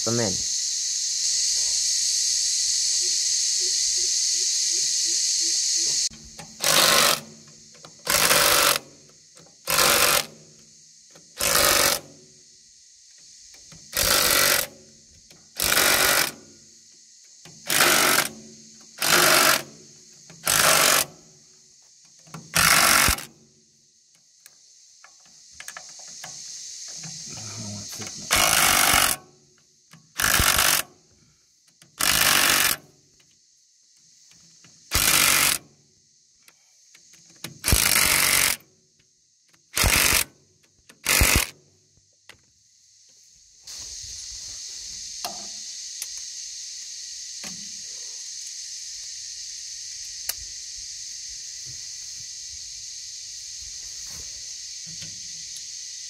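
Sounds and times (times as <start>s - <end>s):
high insect buzz: 0.0s - 56.0s
cordless drill bursts: 6.6s - 7.3s, 8.0s - 8.9s, 9.7s - 10.3s, 11.4s - 12.1s, 15.6s - 16.4s, 17.6s - 18.4s, 19.0s - 19.7s, 20.4s - 21.1s, 22.5s - 23.3s, 28.3s - 29.2s, 30.2s - 30.9s, 32.0s - 32.8s, 34.9s - 35.6s, 37.6s - 38.6s, 39.8s - 40.3s, 41.0s - 41.5s.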